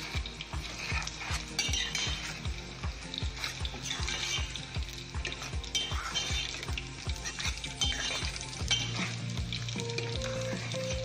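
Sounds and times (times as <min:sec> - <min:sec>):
spoon scraping a metal pot: 0:00.0 - 0:02.6, 0:03.2 - 0:09.3
background music with a beat: 0:00.0 - 0:11.0.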